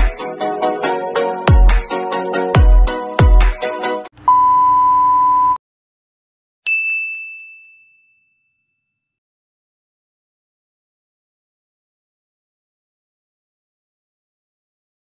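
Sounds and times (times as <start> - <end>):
electronic beep: 4.3 - 5.6
bright ding: 6.7 - 9.0.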